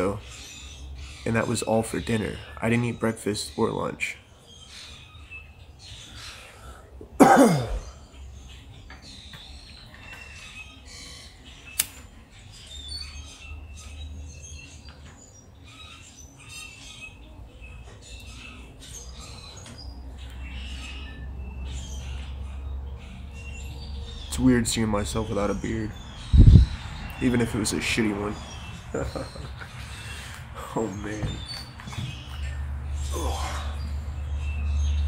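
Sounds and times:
small birds chirping: 0:00.0 - 0:35.0
sharp click: 0:11.8 - 0:12.0.

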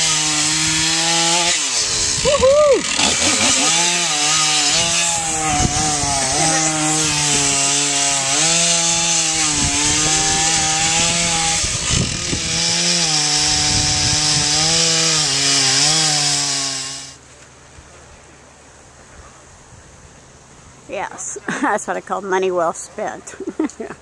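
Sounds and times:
chainsaw cutting wood: 0:00.0 - 0:17.2.

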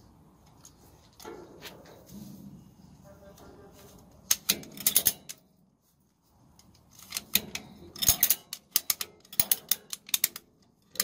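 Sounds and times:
ratchet strap clicking: 0:06.6 - 0:11.0.

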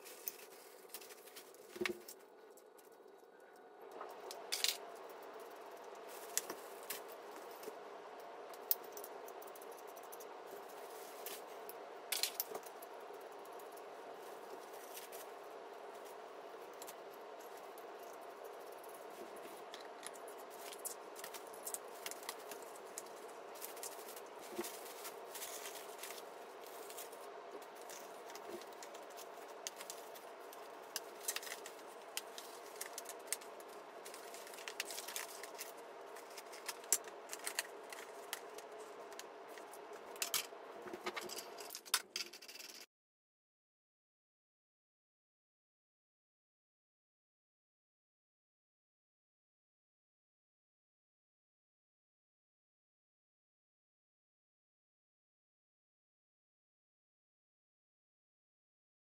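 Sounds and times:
steady low hum: 0:00.0 - 0:41.9
metal parts clicking and rattling: 0:04.0 - 0:07.7, 0:12.1 - 0:13.8, 0:16.8 - 0:42.9.

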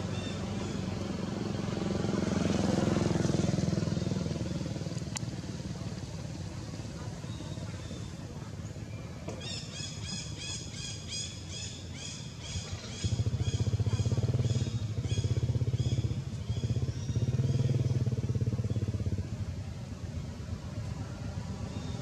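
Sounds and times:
motorcycle engine low drone: 0:00.0 - 0:22.0.

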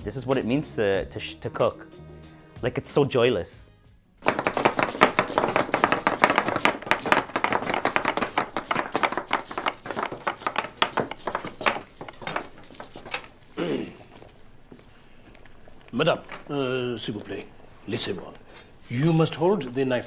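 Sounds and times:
knives chopping on wooden board: 0:04.2 - 0:13.3.

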